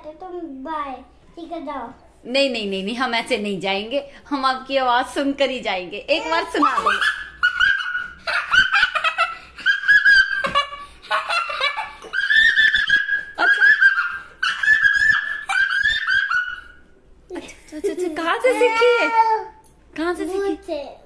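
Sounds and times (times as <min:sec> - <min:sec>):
boy cackling like a witch: 0:06.5 - 0:17.5.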